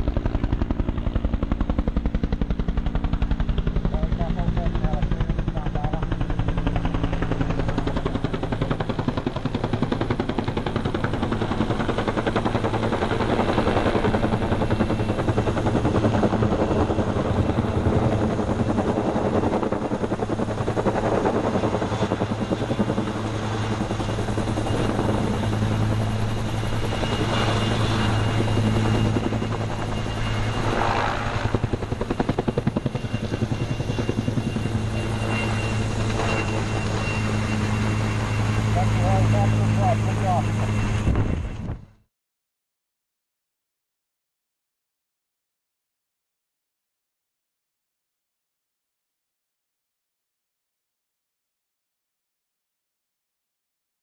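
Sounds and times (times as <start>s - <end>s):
helicopter rotor beating: 0.0s - 42.0s.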